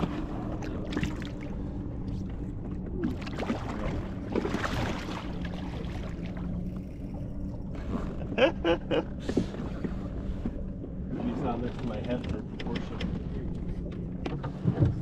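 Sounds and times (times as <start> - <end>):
boat motor humming: 0.0 - 15.0
water splashing against boat: 0.0 - 15.0.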